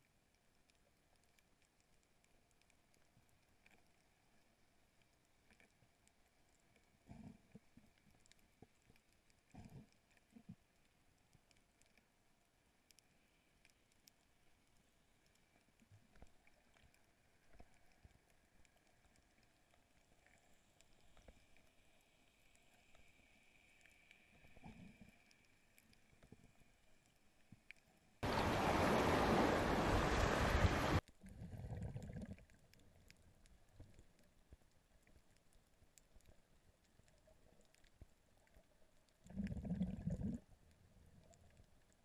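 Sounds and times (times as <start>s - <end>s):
faint underwater clicks and crackle: 0.0s - 28.5s, 30.0s - 42.0s
rushing water: 28.2s - 31.0s.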